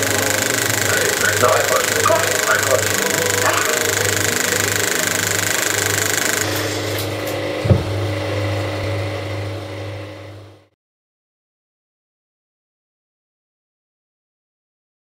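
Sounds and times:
film projector whirring: 0:00.0 - 0:10.3.

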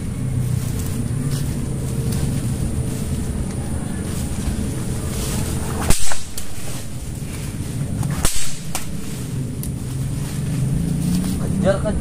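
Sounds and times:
sharp whip-like cracks: 0:05.7 - 0:06.9, 0:08.1 - 0:09.7.

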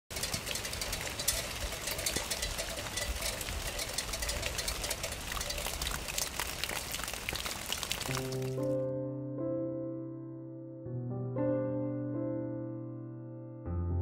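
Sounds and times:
freight train rumbling and clattering: 0:00.1 - 0:06.7
steady rain: 0:00.1 - 0:08.8.

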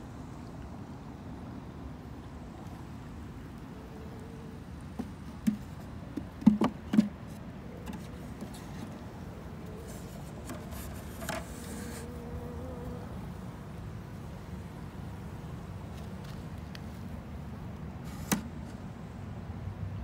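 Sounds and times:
honeybee buzzing: 0:09.4 - 0:15.5.

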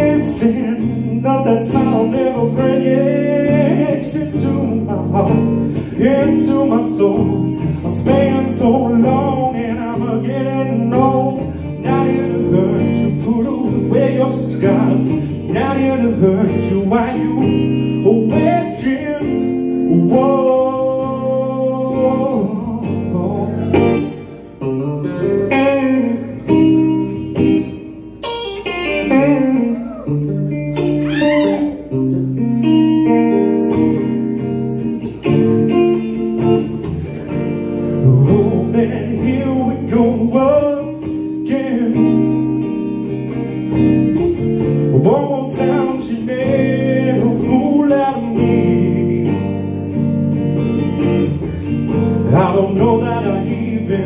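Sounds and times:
electric guitar chords and lead: 0:00.0 - 0:54.0.

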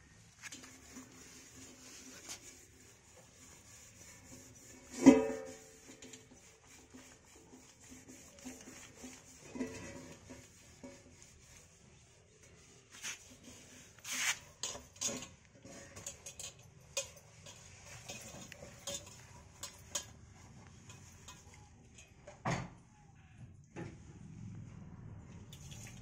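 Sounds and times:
metal dishes clinking: 0:14.6 - 0:20.2.

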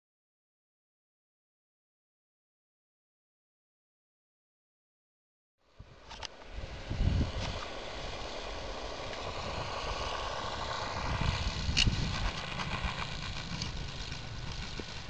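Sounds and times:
model airplane motor whining: 0:05.8 - 0:15.0
wind rumble on microphone: 0:05.8 - 0:15.0
sharp click: 0:06.1 - 0:06.5.

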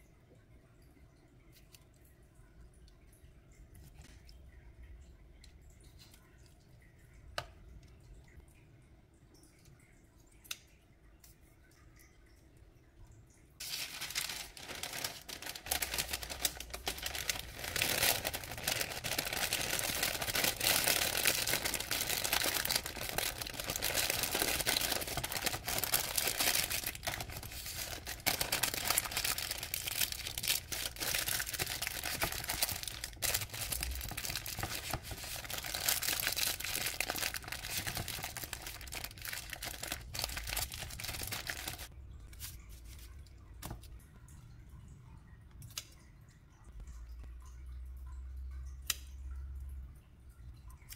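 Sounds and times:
parchment paper crinkling: 0:13.6 - 0:43.8.

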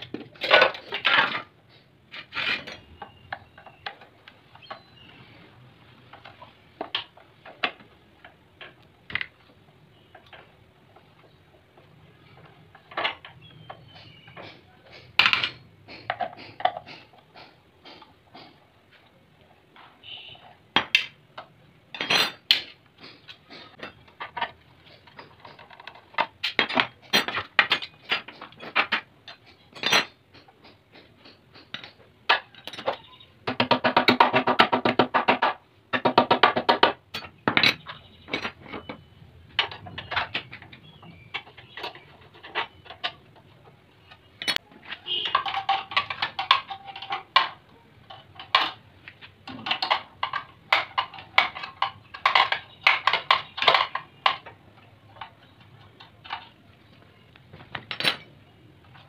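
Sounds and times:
metal tools clinking on engine: 0:21.9 - 0:33.2.

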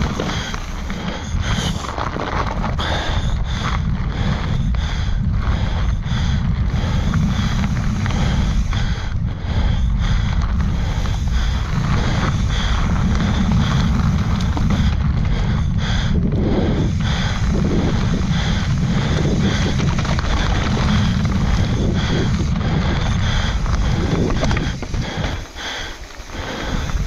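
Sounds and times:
bike knocks and rattles: 0:00.0 - 0:04.4, 0:10.1 - 0:16.0, 0:16.9 - 0:27.0
tyre noise on dirt: 0:00.0 - 0:09.2, 0:09.9 - 0:27.0
wind buffeting microphone: 0:00.0 - 0:27.0.

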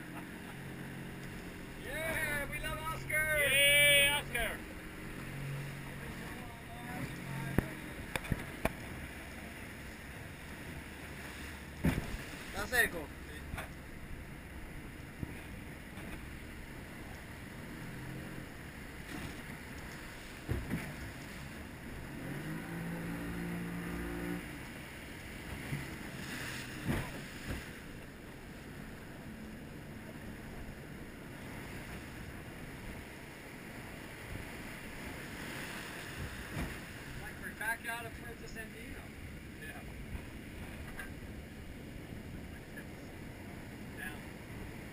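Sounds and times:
rush of wind and water: 0:00.0 - 0:44.9
waves knocking on boat hull: 0:04.2 - 0:09.1, 0:10.7 - 0:14.0, 0:14.6 - 0:17.2, 0:18.9 - 0:21.9, 0:25.2 - 0:28.4, 0:31.2 - 0:37.5, 0:39.6 - 0:42.8.

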